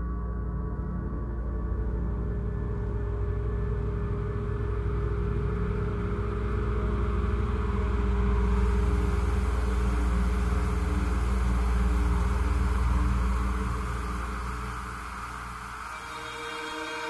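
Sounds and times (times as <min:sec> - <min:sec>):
ambient drone music: 0:00.0 - 0:17.0.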